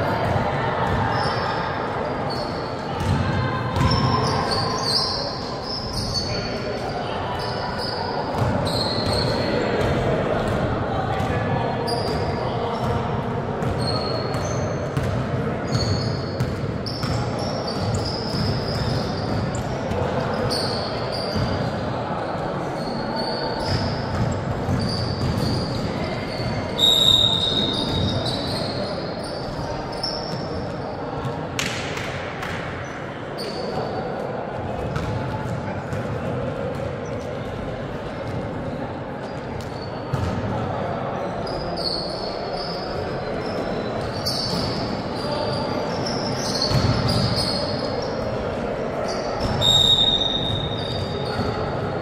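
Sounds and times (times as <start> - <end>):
players' voices echoing: 0.0 - 52.0
sneakers squeaking on floor: 0.2 - 10.6, 11.2 - 13.0, 13.6 - 22.0, 22.6 - 32.6, 33.4 - 34.0, 34.8 - 37.6, 39.2 - 40.5, 41.2 - 51.9
basketball bouncing: 3.0 - 4.0, 15.0 - 15.2, 23.7 - 25.6, 34.8 - 35.6.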